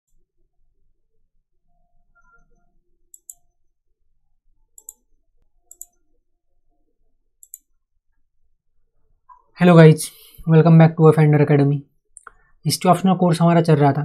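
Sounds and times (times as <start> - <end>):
computer mouse clicks: 2.2 - 3.6, 4.7 - 6.0, 7.4 - 7.8, 12.1 - 12.4.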